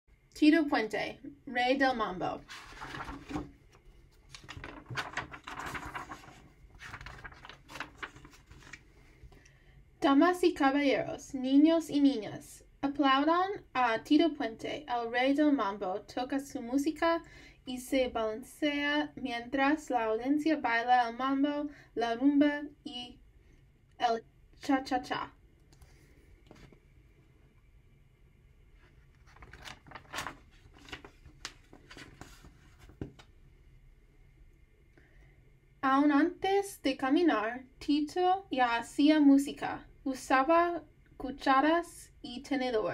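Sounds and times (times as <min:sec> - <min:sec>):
book pages turning: 0:02.4 - 0:09.1, 0:25.8 - 0:26.9, 0:28.8 - 0:33.3
paper rustling: 0:02.4 - 0:09.4, 0:25.8 - 0:26.8, 0:28.8 - 0:33.3.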